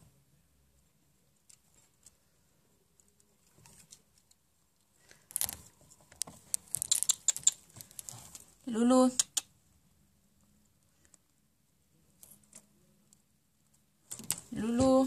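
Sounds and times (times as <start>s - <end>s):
faint small clicks: 5.1s - 8.1s
sharp clicks: 6.5s - 8.0s, 9.2s - 9.5s.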